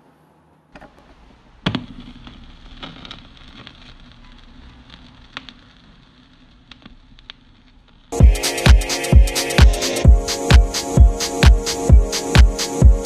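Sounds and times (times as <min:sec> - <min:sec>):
vinyl surface clicks and crackle: 0:00.8 - 0:08.2.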